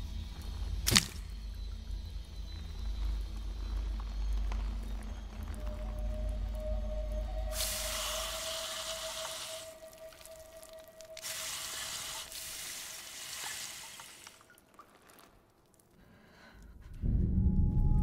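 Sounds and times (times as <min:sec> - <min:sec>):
low held music tone: 0:00.0 - 0:11.7, 0:16.6 - 0:18.0
acid sizzling on metal: 0:07.5 - 0:14.4.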